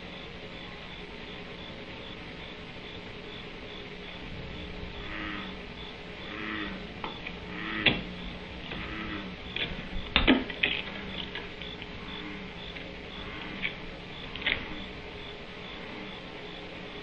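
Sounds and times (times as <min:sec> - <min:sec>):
faint regular chirping: 0:00.0 - 0:17.0
steady hum: 0:00.0 - 0:17.0.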